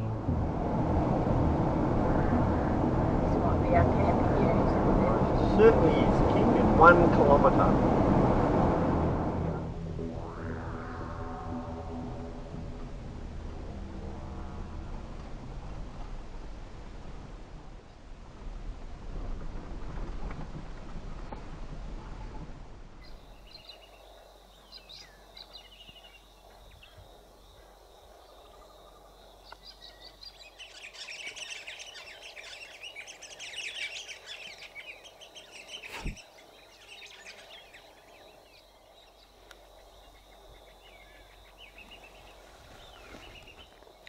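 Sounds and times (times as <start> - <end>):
vehicle rolling on dirt track: 12.6 - 23.3
birds calling and chattering: 23.0 - 44.0.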